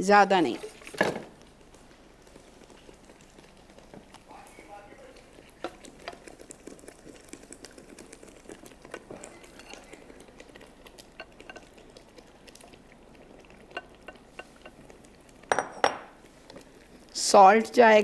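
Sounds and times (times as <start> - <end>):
bubbling hiss in pan: 0.1 - 18.0
spatula scraping pan: 9.0 - 10.5, 11.1 - 11.8.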